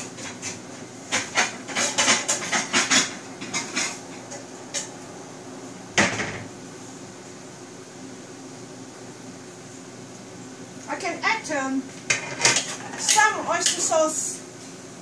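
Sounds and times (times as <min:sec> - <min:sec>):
ladle scraping and clanking wok: 0:00.0 - 0:04.9, 0:12.1 - 0:14.0
frying hiss: 0:00.0 - 0:15.0.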